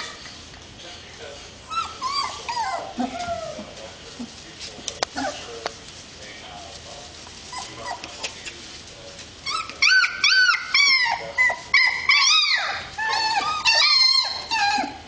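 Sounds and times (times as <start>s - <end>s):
puppies whining and yelping: 1.6s - 3.8s, 5.1s - 5.5s, 7.5s - 8.2s, 9.4s - 15.0s.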